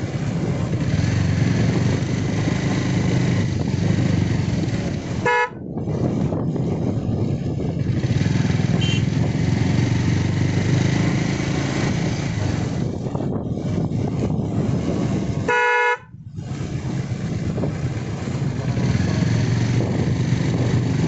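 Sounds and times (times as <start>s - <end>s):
motorcycle engine: 0.0s - 21.0s
wind noise: 0.0s - 21.0s
horn beep: 5.2s - 5.6s, 8.8s - 9.1s, 15.5s - 16.1s.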